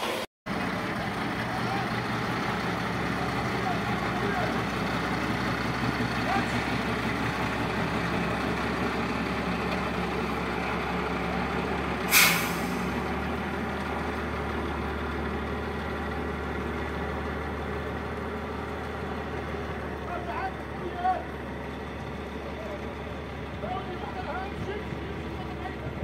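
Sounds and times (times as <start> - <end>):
diesel truck engine on gravel: 0.0 - 26.0
air-brake hiss: 12.1 - 13.0.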